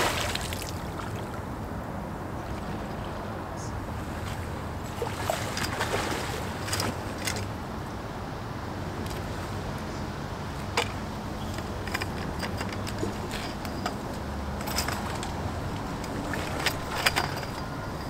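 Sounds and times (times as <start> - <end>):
fishing gear clicks and knocks: 6.6 - 7.6, 10.4 - 18.0.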